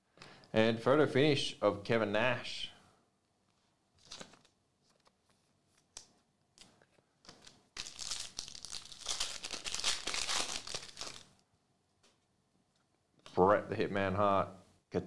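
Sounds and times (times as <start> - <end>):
foil wrapper tearing and crinkling: 7.4 - 11.3.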